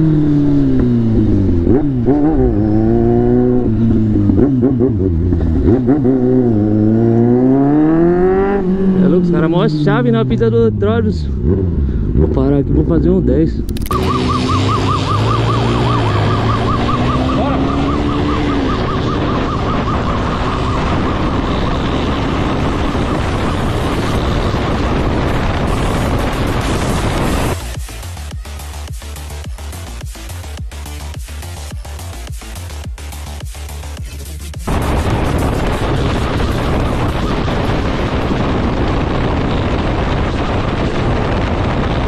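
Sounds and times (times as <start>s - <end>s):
road noise: 0.0s - 42.0s
loud rushing noise: 13.7s - 30.8s, 33.3s - 42.0s
engine rising in pitch: 13.7s - 40.8s
electronic dance music: 13.8s - 20.8s, 25.7s - 37.4s
police siren yelp: 13.8s - 24.0s
heavy wind: 16.2s - 27.6s, 34.7s - 42.0s.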